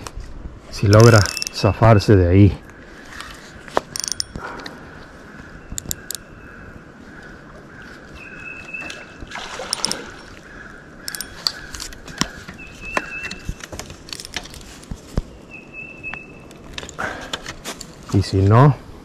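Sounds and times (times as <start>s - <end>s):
fishing reel clicks and rattles: 0.9s - 1.6s, 3.9s - 4.4s, 5.8s - 6.2s, 9.7s - 10.0s, 11.0s - 12.0s.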